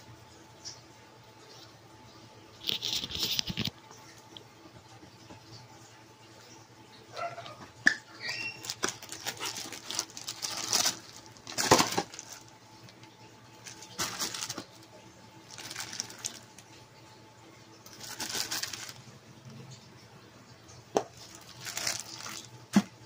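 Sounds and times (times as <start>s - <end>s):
cardboard and plastic crinkling: 8.4s - 16.8s, 17.9s - 19.1s, 21.0s - 23.0s.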